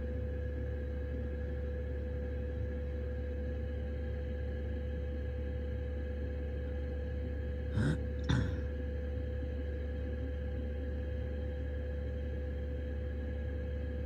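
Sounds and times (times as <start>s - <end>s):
heater droning with whine: 0.0s - 14.0s
person breathing: 7.8s - 8.6s.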